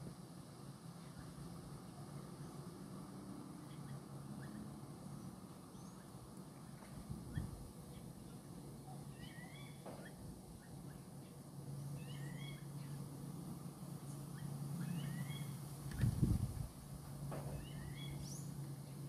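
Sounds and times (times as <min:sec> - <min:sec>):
low steady hum: 0:00.0 - 0:19.0
bird whistling call: 0:09.1 - 0:11.0, 0:12.0 - 0:13.0, 0:14.3 - 0:15.6, 0:17.5 - 0:18.5.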